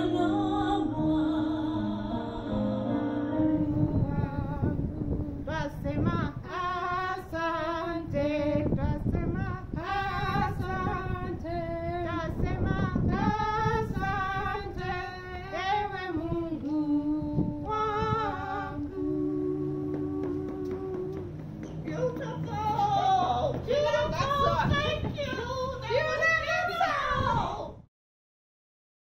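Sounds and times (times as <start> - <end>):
woman singing with vibrato: 0.0 - 27.8
quiet instrumental accompaniment: 16.3 - 26.5.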